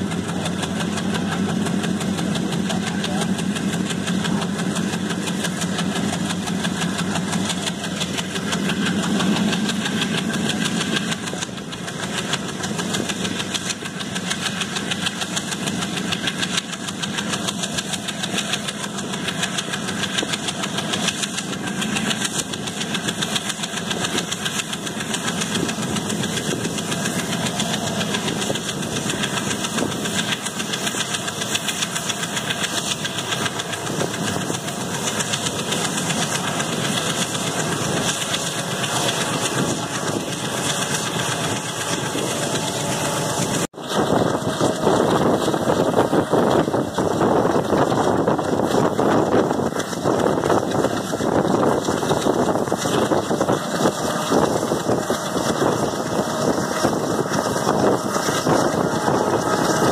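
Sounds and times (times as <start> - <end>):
train wheels clattering on track: 0.0 - 59.9
wind rushing: 39.3 - 59.9.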